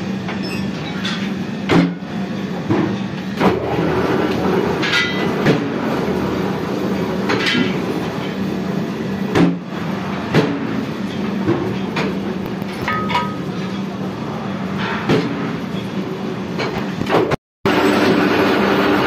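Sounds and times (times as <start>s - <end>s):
metal clanks and knocks: 11.5s - 13.6s.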